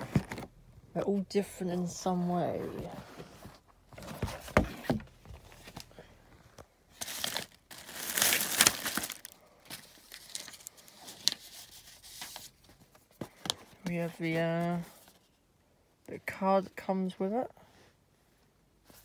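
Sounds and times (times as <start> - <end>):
cardboard box handled with knocks: 2.8 - 5.8
tissue paper rustling: 7.0 - 12.9.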